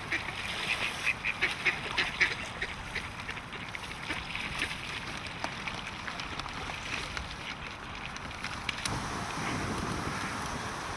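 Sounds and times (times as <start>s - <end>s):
ducks quacking: 0.0s - 4.8s
background hiss: 8.8s - 10.9s.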